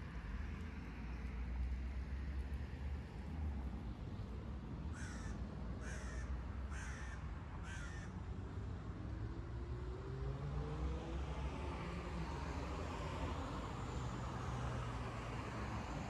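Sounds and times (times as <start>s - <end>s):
city traffic rumble: 0.0s - 16.0s
vehicle engine speeding up: 9.4s - 15.9s.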